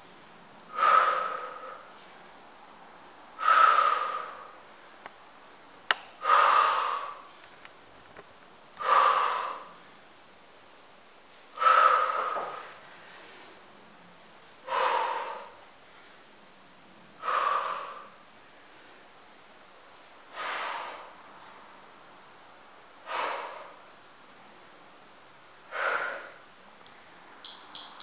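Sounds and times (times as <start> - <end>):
woman exhaling hard: 0.7 - 1.9, 25.7 - 26.4.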